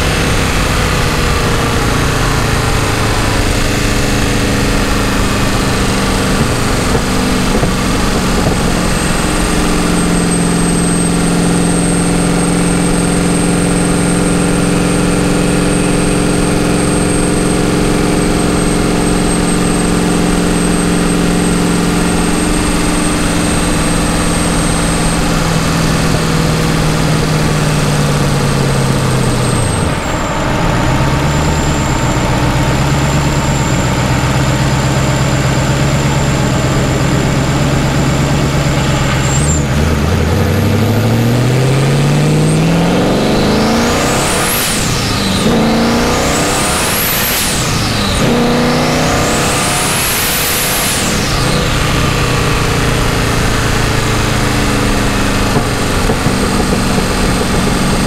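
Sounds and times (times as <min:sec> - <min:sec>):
wind noise: 0:00.0 - 0:11.3, 0:50.3 - 0:58.0
car engine running: 0:00.0 - 0:58.0
road noise: 0:00.0 - 0:58.0.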